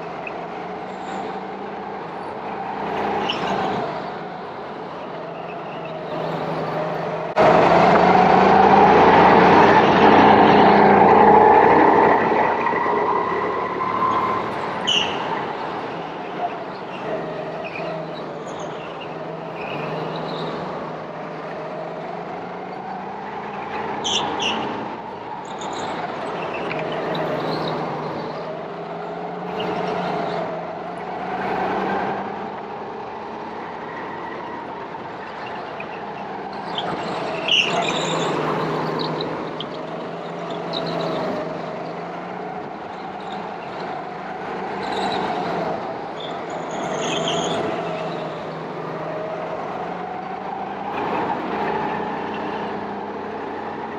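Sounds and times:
go-kart engines revving: 0:00.0 - 0:53.9
high squeaks: 0:12.5 - 0:15.6, 0:46.2 - 0:48.4.

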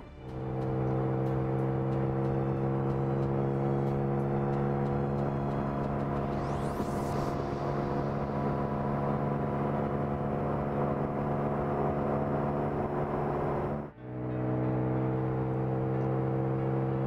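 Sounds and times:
car engine at speed: 0:00.0 - 0:17.0.

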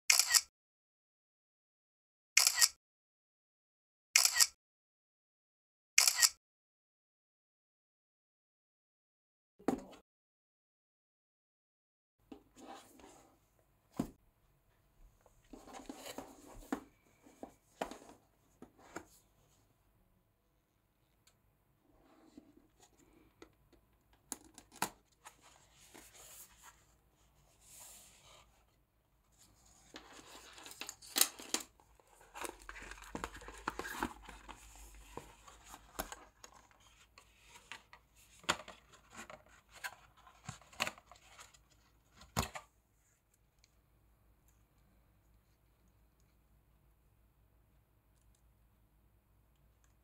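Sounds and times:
packaging rustling and scraping: 0:29.4 - 0:41.8.

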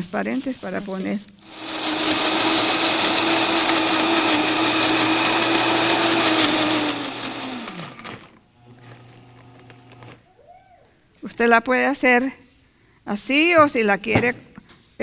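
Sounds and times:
food processor motor running: 0:01.4 - 0:10.2.

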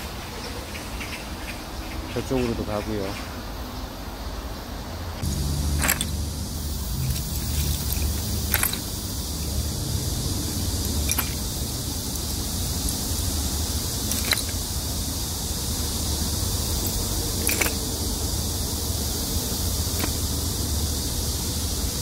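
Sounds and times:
high hiss: 0:00.0 - 0:22.0
low rumble: 0:05.2 - 0:21.8.

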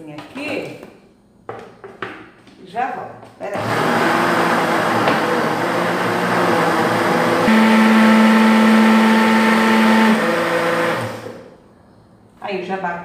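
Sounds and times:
blender motor running: 0:03.6 - 0:11.5.

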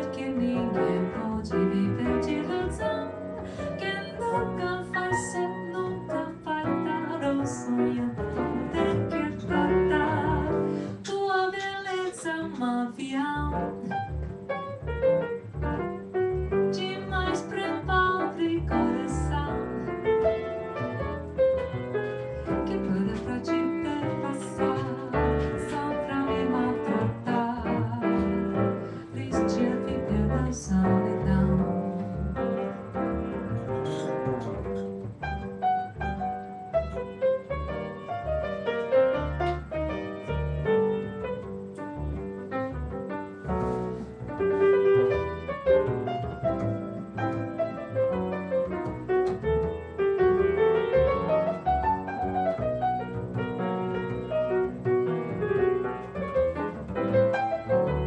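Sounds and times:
woman singing: 0:00.0 - 0:13.8, 0:16.7 - 0:19.9, 0:22.6 - 0:32.1
piano chords: 0:00.0 - 0:58.0
plucked double bass: 0:00.0 - 0:58.0.

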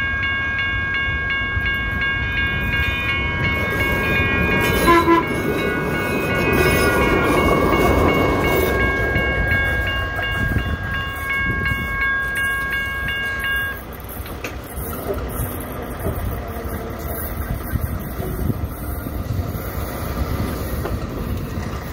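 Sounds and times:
train rumbling and clattering: 0:00.0 - 0:21.9
train horn chord: 0:04.8 - 0:05.4.

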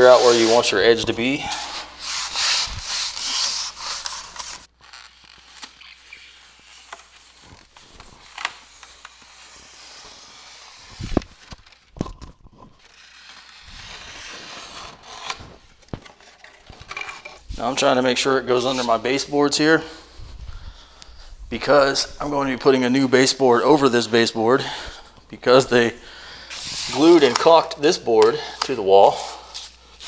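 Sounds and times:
rubbing and scraping of sheet: 0:00.0 - 0:11.9, 0:12.5 - 0:16.0, 0:26.5 - 0:27.6.

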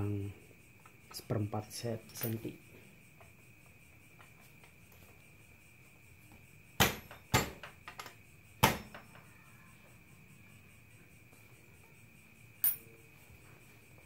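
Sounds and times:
metallic clicks of chain hardware: 0:02.1 - 0:02.5, 0:12.6 - 0:12.8
faint steady high tone: 0:08.9 - 0:13.8.

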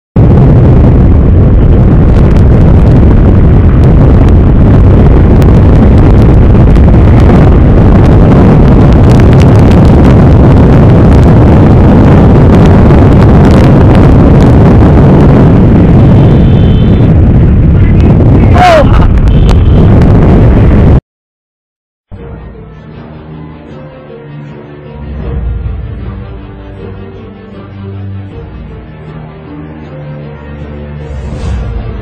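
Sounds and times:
wind buffeting microphone: 0:00.2 - 0:21.0.

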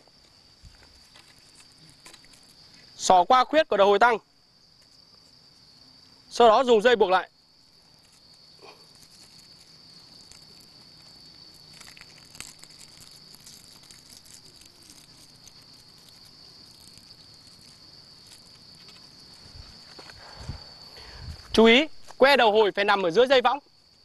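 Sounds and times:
faint rustles: 0:00.0 - 0:03.0, 0:07.7 - 0:22.2
insects droning: 0:00.0 - 0:24.0.

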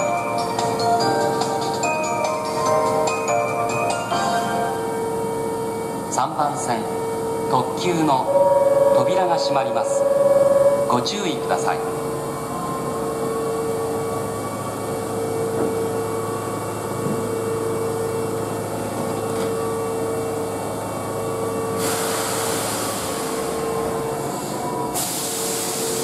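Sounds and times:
train electrical hum: 0:00.0 - 0:26.0
air hiss: 0:21.8 - 0:23.6, 0:25.0 - 0:26.0.

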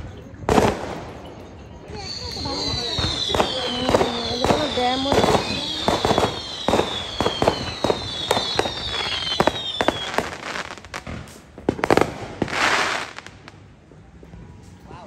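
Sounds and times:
firework cracks and pops: 0:00.4 - 0:13.8
firework crackling hiss: 0:00.5 - 0:13.7
firework whistles falling in pitch: 0:01.1 - 0:10.8.

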